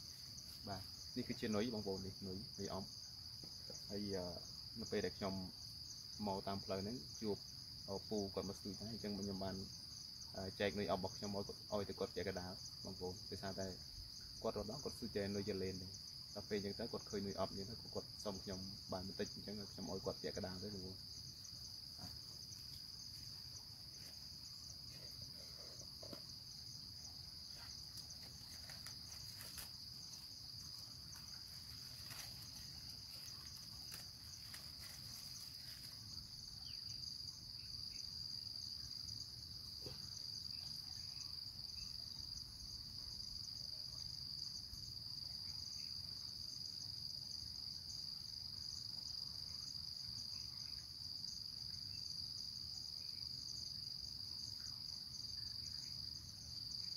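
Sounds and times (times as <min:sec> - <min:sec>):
insects chirring: 0:00.0 - 0:56.9
faint clicks and rustles: 0:27.5 - 0:36.0.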